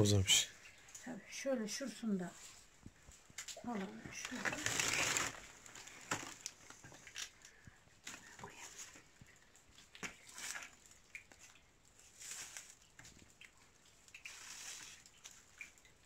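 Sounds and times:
rustling dry onion leaves: 0:03.6 - 0:07.4, 0:12.1 - 0:12.8.

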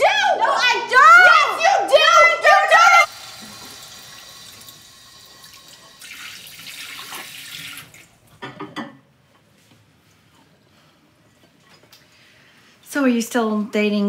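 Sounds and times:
dishes clattering: 0:08.4 - 0:09.1.

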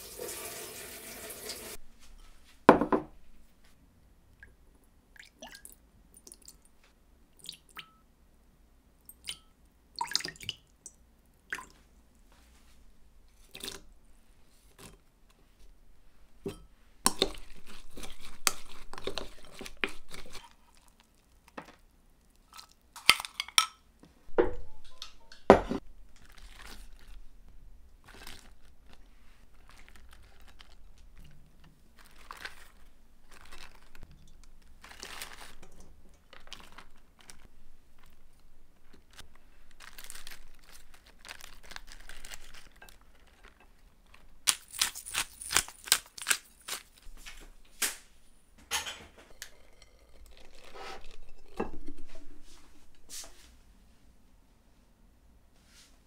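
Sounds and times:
cabbage leaves rustling: 0:28.0 - 0:30.8, 0:32.0 - 0:34.0, 0:34.8 - 0:35.6, 0:39.1 - 0:43.6.

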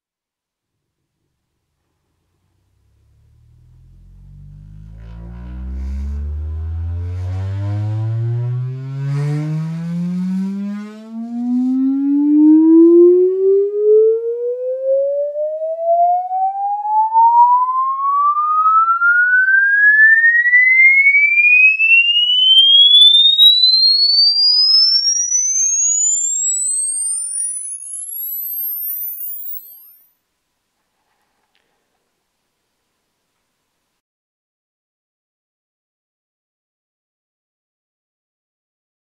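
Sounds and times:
rising sine sweep test tone: 0:02.3 - 0:30.2.

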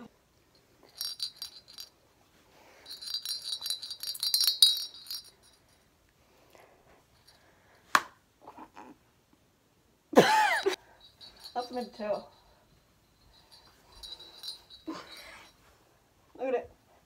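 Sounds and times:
small jingle bell jingling: 0:00.5 - 0:05.9, 0:07.1 - 0:07.5, 0:10.2 - 0:15.7.

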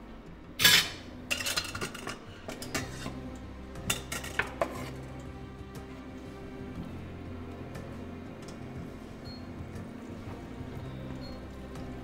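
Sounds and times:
metal utensils clanking: 0:00.6 - 0:03.2, 0:03.8 - 0:05.0.

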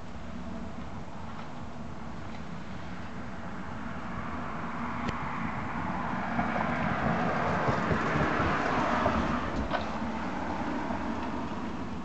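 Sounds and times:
vehicle driving past: 0:02.9 - 0:12.0.

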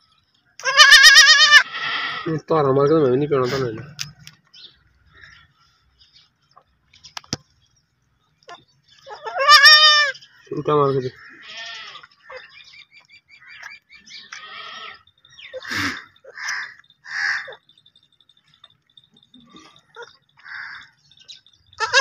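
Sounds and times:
goat kid bleating: 0:00.6 - 0:02.3, 0:09.0 - 0:10.2, 0:11.2 - 0:12.6, 0:14.2 - 0:17.6, 0:21.8 - 0:22.0.

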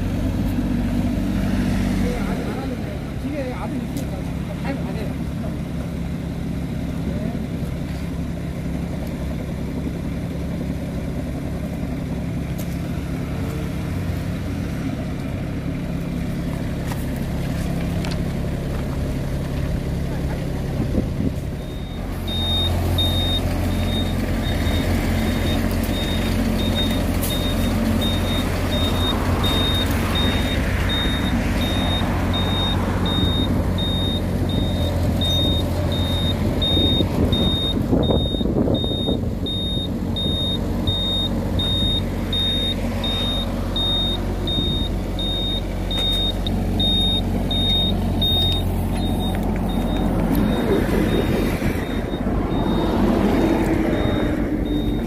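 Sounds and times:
excavator diesel engine running: 0:00.0 - 0:55.0
high-pitched alarm beeping: 0:21.6 - 0:55.0.

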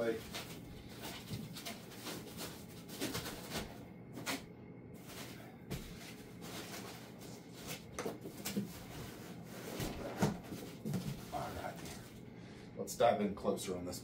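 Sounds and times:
box knocks and bumps: 0:09.7 - 0:11.8.

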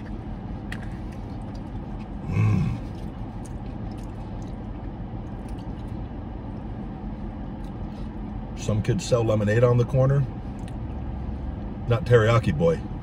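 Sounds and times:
man chewing: 0:00.0 - 0:08.5, 0:10.4 - 0:11.7
car interior hum: 0:00.0 - 0:13.0
man humming mmm: 0:02.2 - 0:02.9.

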